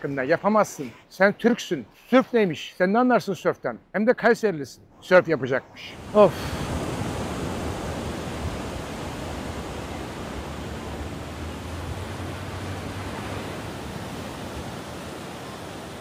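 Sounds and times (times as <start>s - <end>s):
surf breaking on a beach: 5.9s - 16.0s.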